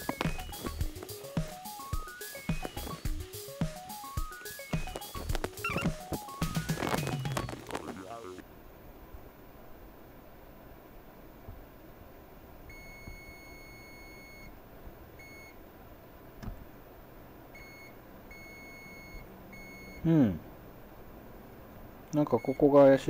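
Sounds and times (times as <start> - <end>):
multimeter continuity beeps: 0.0 - 3.1, 4.2 - 8.4, 12.7 - 14.5, 15.2 - 15.6, 17.6 - 20.0, 22.2 - 23.0.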